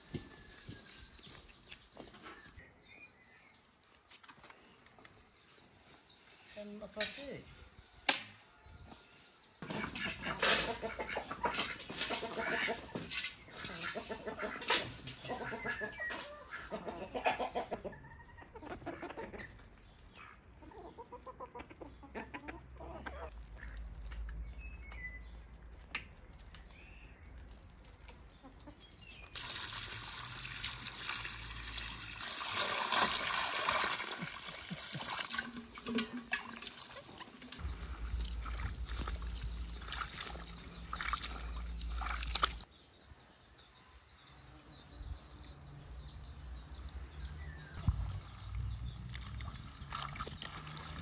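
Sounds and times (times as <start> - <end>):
water splashing in metal basin: 29.4 - 42.7, 49.0 - 51.0.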